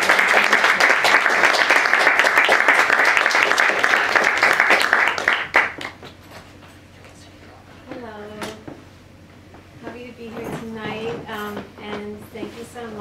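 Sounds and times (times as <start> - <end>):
audience applauding: 0.0 - 6.2.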